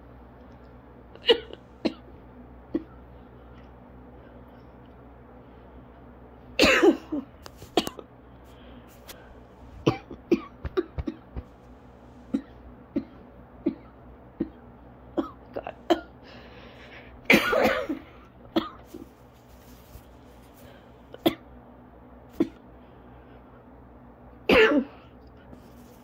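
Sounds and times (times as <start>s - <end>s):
person coughing: 1.2s - 2.1s, 2.7s - 3.0s, 6.6s - 8.0s, 9.8s - 11.5s, 12.3s - 14.6s, 15.2s - 16.2s, 17.3s - 19.1s, 21.1s - 21.4s, 22.4s - 22.6s, 24.5s - 25.1s.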